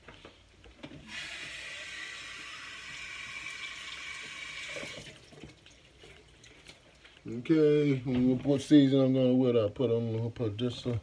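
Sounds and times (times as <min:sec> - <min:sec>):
faucet water running into sink: 0:01.1 - 0:05.8.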